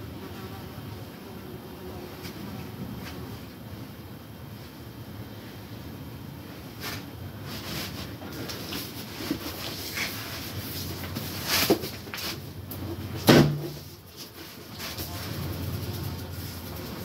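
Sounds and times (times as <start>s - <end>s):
knocks and rustling in a room: 6.8s - 15.6s
loud thump: 13.2s - 13.8s.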